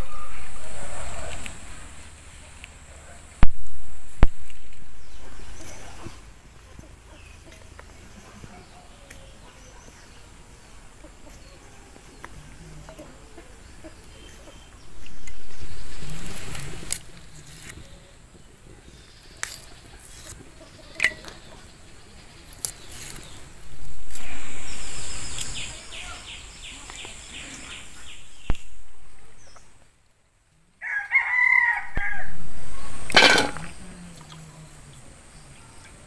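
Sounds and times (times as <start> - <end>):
rooster crowing: 0.0 - 1.3, 30.8 - 32.9
beans snapping: 19.3 - 21.4, 22.5 - 23.4.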